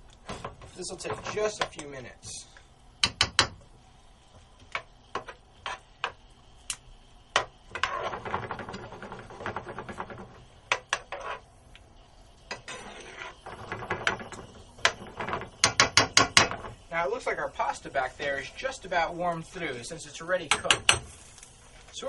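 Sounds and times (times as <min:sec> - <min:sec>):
utensil tapping and scraping pan: 0:00.2 - 0:01.9, 0:04.6 - 0:06.2, 0:07.3 - 0:11.4, 0:12.5 - 0:16.8, 0:20.4 - 0:21.2.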